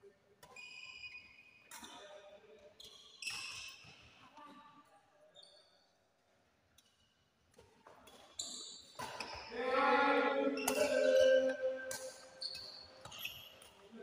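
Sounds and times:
racket hitting shuttlecock: 10.6 - 12.2.

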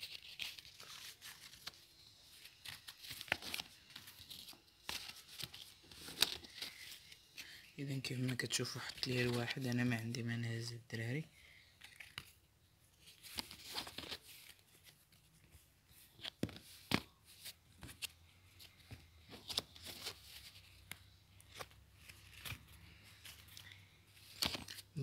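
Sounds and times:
playing cards snapping and rustling: 2.4 - 7.1, 11.8 - 12.4, 13.0 - 15.0, 16.2 - 25.0.

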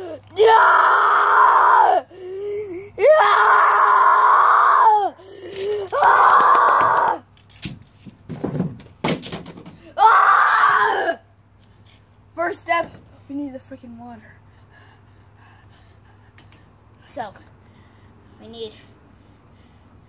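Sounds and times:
person screaming: 0.0 - 2.1, 3.0 - 7.2, 10.0 - 11.2.

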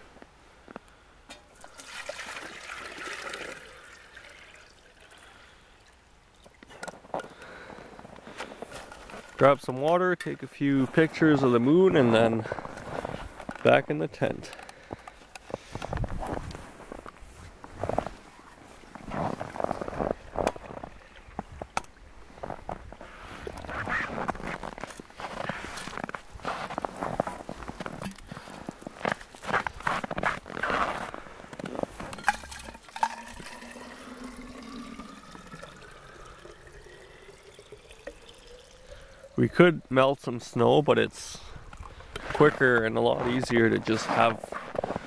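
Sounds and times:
slush splashing and scraping: 1.6 - 5.2, 7.7 - 9.5, 14.9 - 21.6, 22.3 - 37.0, 41.4 - 45.0
water pouring into teapot: 1.6 - 6.6, 32.1 - 39.6.

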